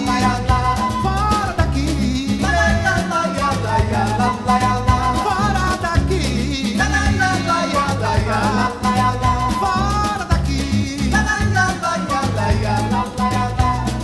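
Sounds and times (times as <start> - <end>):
upbeat latin music with singing: 0.0 - 14.0.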